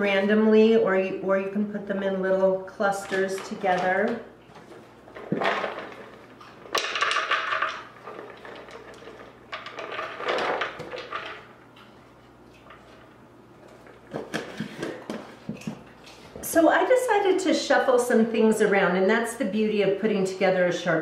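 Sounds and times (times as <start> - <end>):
nuts rattling onto wooden board: 5.2 - 11.5.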